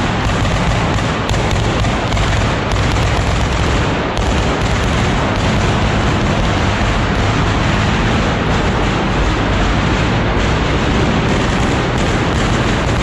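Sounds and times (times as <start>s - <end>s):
fireworks bangs and crackling: 0.0s - 13.0s.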